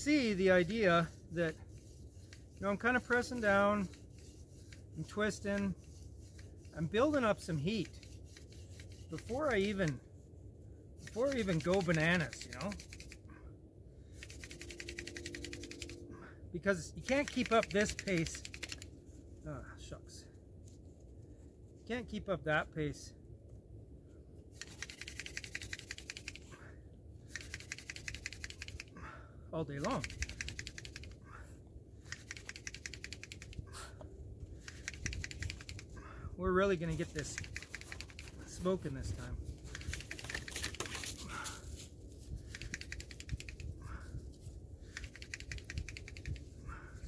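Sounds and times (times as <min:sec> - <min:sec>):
hand drill ticking and rubbing: 0:00.0 - 0:10.1, 0:11.0 - 0:13.3, 0:14.1 - 0:16.1, 0:17.0 - 0:19.0, 0:24.5 - 0:26.6, 0:27.2 - 0:29.1, 0:29.7 - 0:31.4, 0:32.0 - 0:47.0
spindle drill dry ticking: 0:27.3 - 0:28.9, 0:32.0 - 0:33.7, 0:34.6 - 0:36.0, 0:44.9 - 0:46.4.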